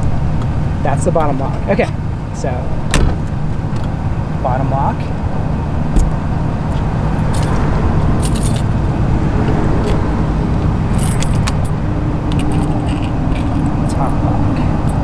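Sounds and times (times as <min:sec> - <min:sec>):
steady low rumble: 0:00.0 - 0:15.0
keys jangling in a lock: 0:07.2 - 0:07.6, 0:08.2 - 0:08.8, 0:10.9 - 0:15.0.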